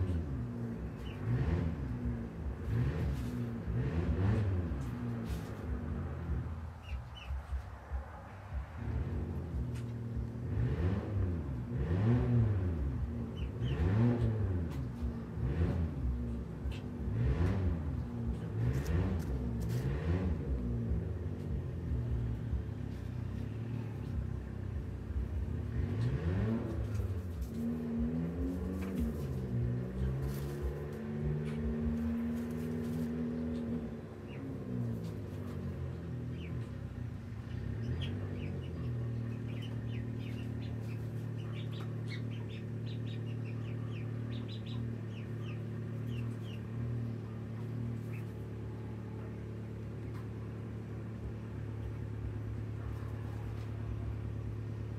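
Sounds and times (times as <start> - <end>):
bird chirping: 6.8 - 7.6, 37.5 - 46.8
motor engine running: 8.9 - 54.9.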